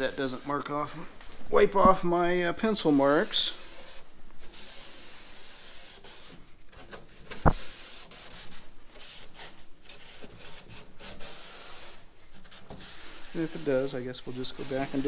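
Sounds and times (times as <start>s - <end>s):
rag rubbing on wood: 10.1s - 15.0s.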